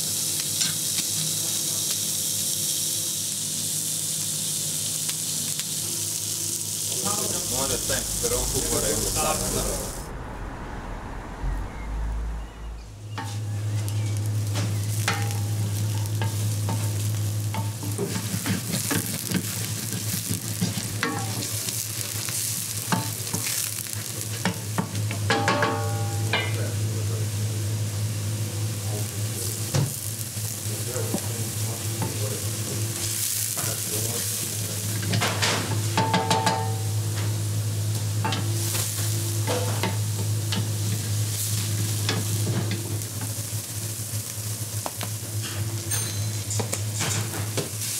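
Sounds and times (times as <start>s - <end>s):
onion sizzling in oil: 0.0s - 10.1s, 13.0s - 47.9s
low steady hum: 5.8s - 17.9s.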